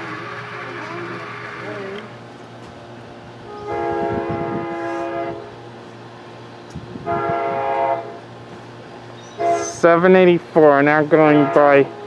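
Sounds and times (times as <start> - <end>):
train horn blasts: 3.4 - 5.6, 7.0 - 8.3, 9.3 - 10.2, 11.0 - 12.0.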